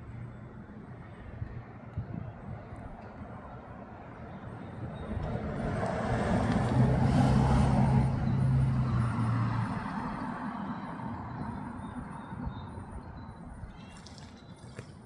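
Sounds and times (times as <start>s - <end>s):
motor vehicle passing by: 4.9s - 12.7s.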